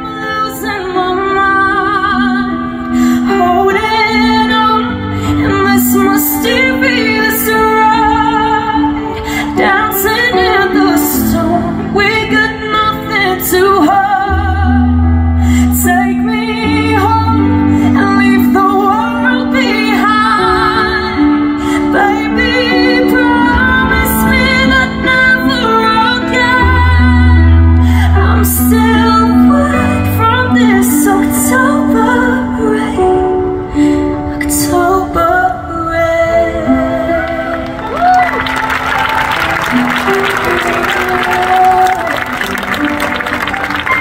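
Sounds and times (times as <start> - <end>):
woman singing a slow ballad: 0.0 - 38.4, 40.6 - 42.4.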